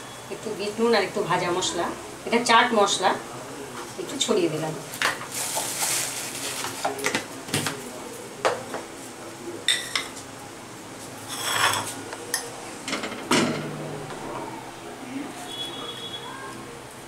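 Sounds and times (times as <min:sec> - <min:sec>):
crockery and utensils clinking: 0:11.3 - 0:13.7.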